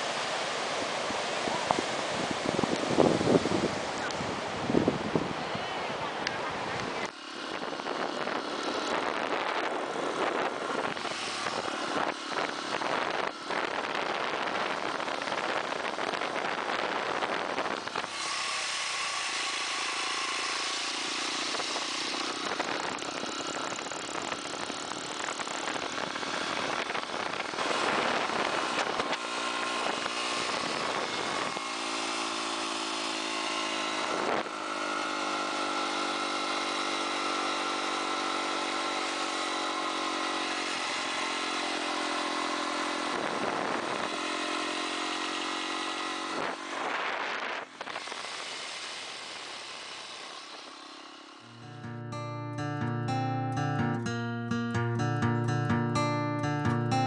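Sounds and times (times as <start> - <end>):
dense rushing surf noise: 0.0 - 19.2
dirt bike engine running: 6.5 - 52.4.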